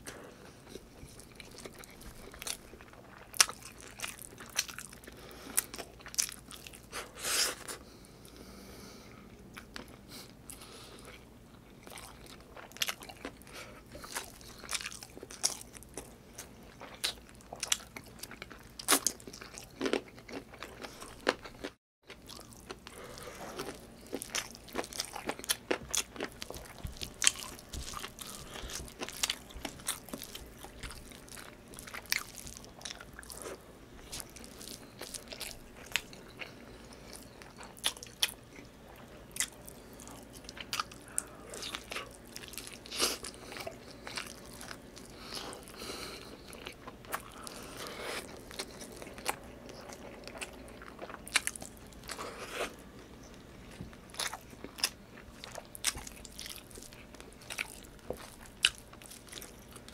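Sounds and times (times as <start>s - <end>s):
man chewing food: 0.0s - 59.9s.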